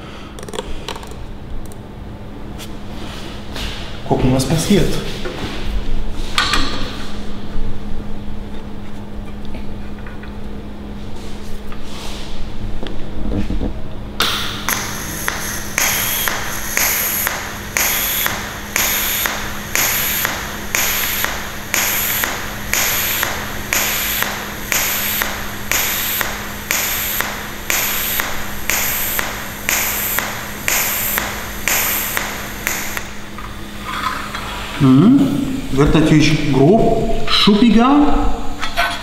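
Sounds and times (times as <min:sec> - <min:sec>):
pulsed welding arc: 0:14.2 - 0:33.9.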